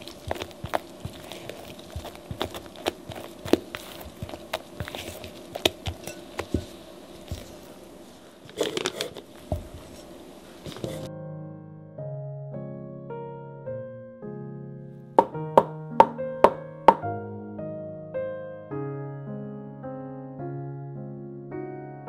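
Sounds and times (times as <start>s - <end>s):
plastic bag crinkling: 0.0s - 7.8s, 8.4s - 11.1s
faint steady hum: 0.0s - 11.1s.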